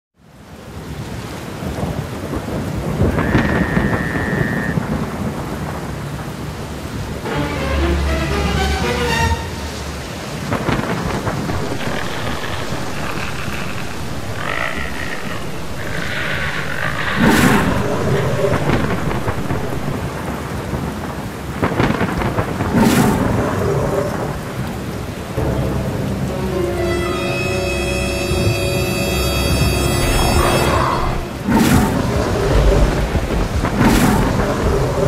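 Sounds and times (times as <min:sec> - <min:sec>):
steady rain: 0:00.2 - 0:35.0
loud thunderclaps: 0:01.5 - 0:07.2, 0:10.2 - 0:26.0, 0:31.2 - 0:35.0.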